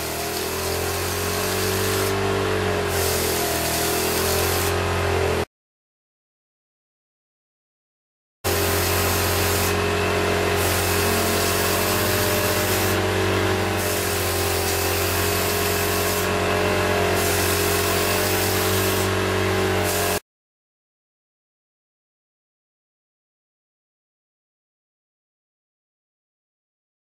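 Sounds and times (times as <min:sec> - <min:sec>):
air pump motor hum: 0:00.0 - 0:05.0, 0:08.5 - 0:20.2.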